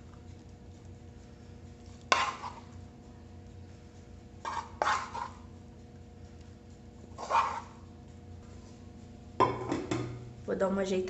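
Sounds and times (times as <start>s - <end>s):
wooden spoon knocking on frying pan: 9.4s - 10.2s.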